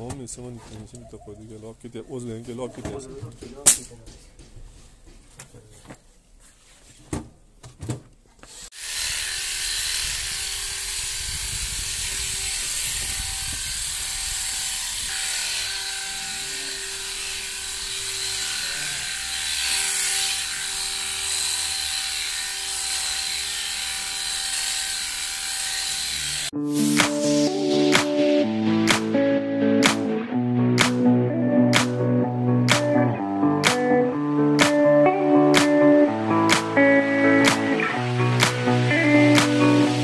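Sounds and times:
electric clippers shearing fleece: 8.4 - 28.2, 29.8 - 30.1, 33.6 - 33.9, 34.6 - 34.8, 35.5 - 40.0.

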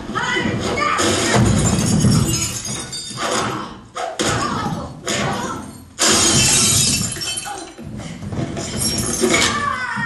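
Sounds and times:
glass shattering crash: 1.4 - 3.2, 6.0 - 7.8.

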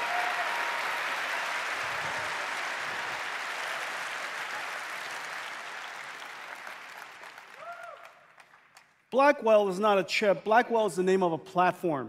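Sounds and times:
large audience applauding: 0.0 - 9.0.

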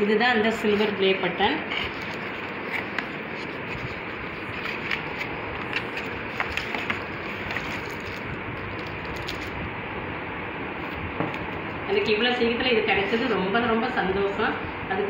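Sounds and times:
steady background hiss: 0.0 - 15.0
plastic wrap crinkling: 0.3 - 9.7.

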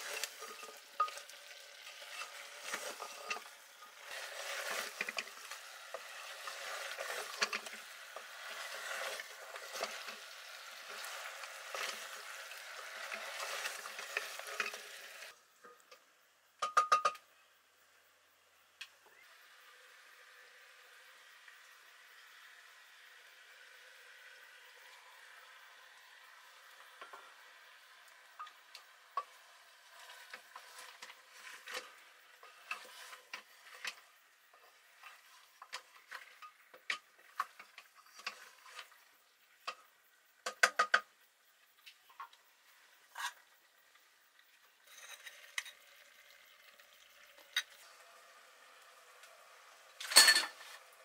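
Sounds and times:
spatula scraping pot: 0.0 - 15.3, 28.4 - 39.1
faint frying sizzle: 0.0 - 51.0.

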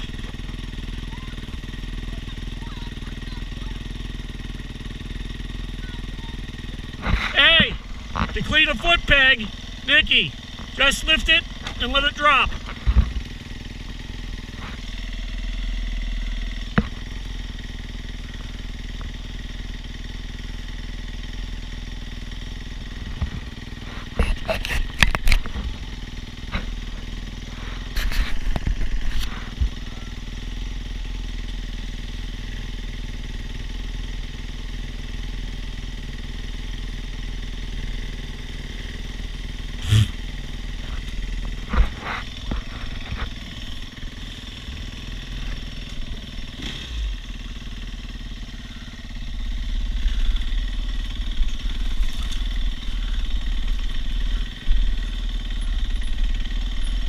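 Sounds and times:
dirt bike engines idling: 0.0 - 57.0.

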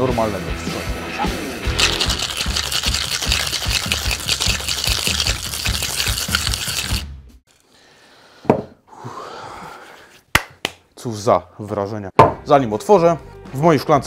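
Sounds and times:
ice rattling in cocktail shaker: 1.7 - 7.1
knock: 8.5 - 8.7.

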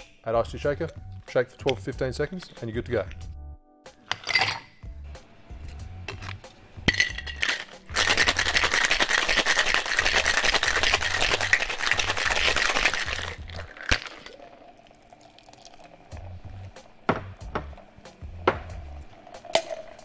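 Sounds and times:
background music with low beat: 0.0 - 4.1, 4.7 - 13.7, 16.1 - 20.0
ice rattling in cocktail shaker: 6.9 - 15.9.

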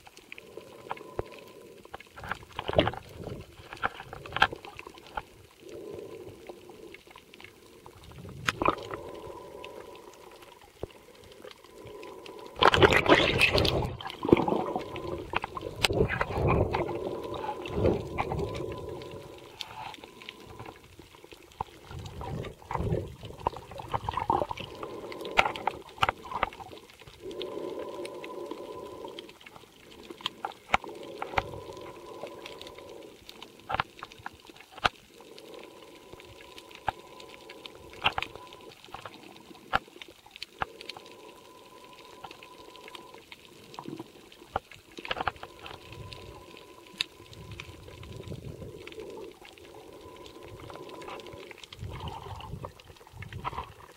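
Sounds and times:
sharp underwater clicks: 0.0 - 53.9
underwater water noise: 0.0 - 53.9
breathing through a snorkel: 5.6 - 7.8, 8.6 - 20.9, 21.8 - 34.2, 45.0 - 52.8.

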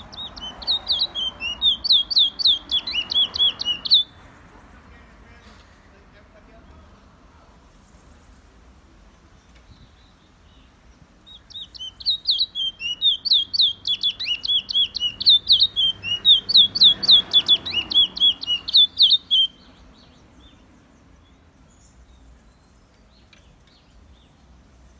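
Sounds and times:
finch singing whistled notes: 0.0 - 4.1, 11.3 - 20.6.

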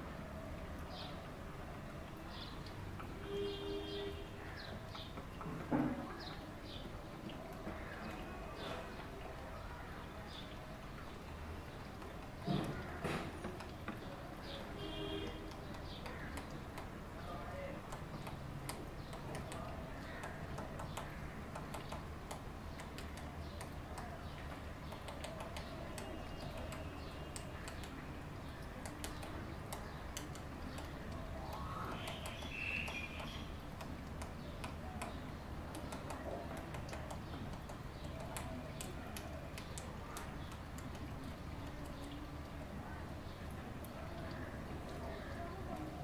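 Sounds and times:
woodpecker tapping on wood: 15.2 - 17.0, 17.8 - 28.1, 28.7 - 41.8.

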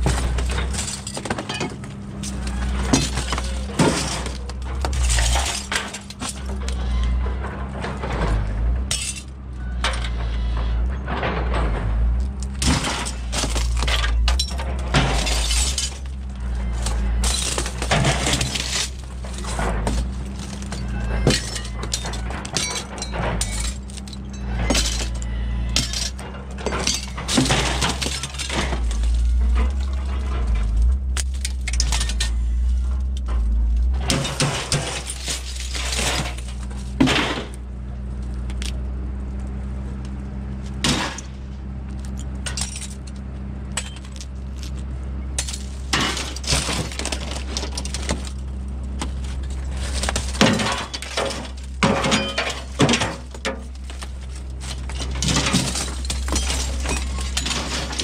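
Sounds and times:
glass shattering and clinking: 0.0 - 6.8, 8.9 - 10.1, 12.6 - 32.8, 34.0 - 37.5, 42.4 - 43.1, 43.8 - 44.3, 45.4 - 48.4, 49.0 - 58.0.

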